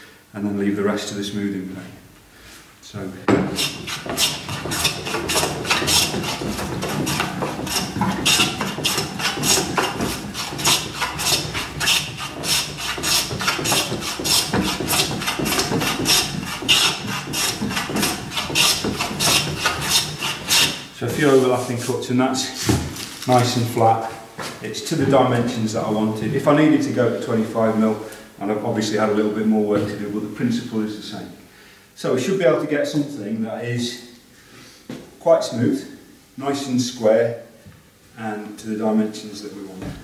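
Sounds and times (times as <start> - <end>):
hand plane shaving wood: 3.4 - 21.6.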